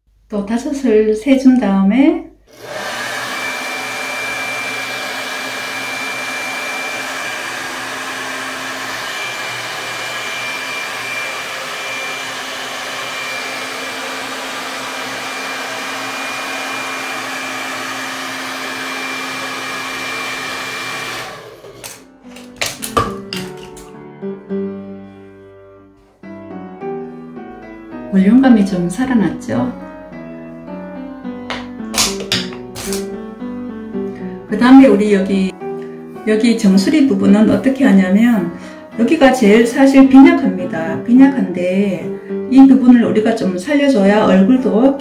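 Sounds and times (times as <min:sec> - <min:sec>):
hair dryer blowing: 0:02.5 - 0:23.9, 0:31.5 - 0:33.0
hair dryer switching off: 0:02.5 - 0:23.9, 0:31.5 - 0:33.1.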